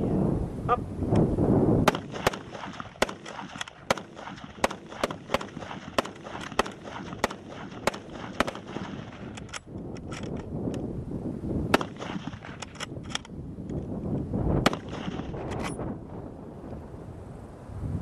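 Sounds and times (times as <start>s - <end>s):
rifle shots: 1.8s - 9.7s, 11.7s - 13.2s, 14.6s - 15.8s.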